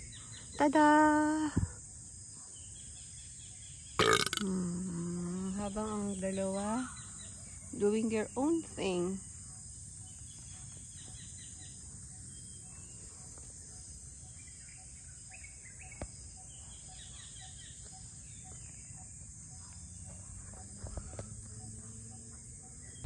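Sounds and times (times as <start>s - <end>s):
insects droning: 0.0s - 23.0s.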